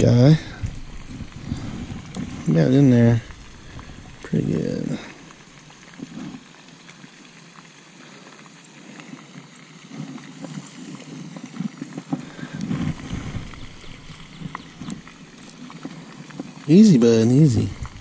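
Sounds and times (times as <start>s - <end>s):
rustling and scuffling: 11.6s - 16.5s.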